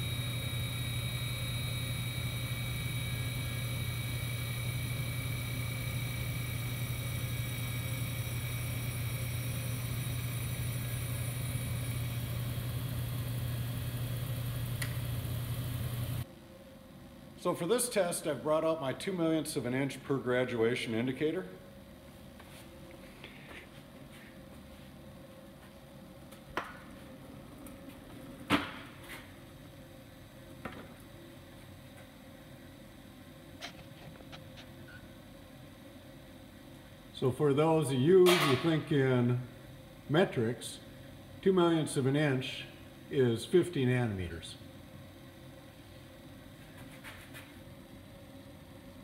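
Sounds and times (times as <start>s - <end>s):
grinder humming: 0.0s - 16.2s
steady low hum: 0.0s - 49.0s.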